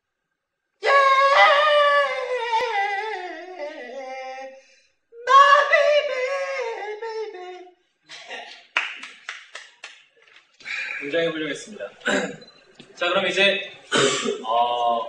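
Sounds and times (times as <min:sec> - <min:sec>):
man singing high notes: 0:00.8 - 0:07.8.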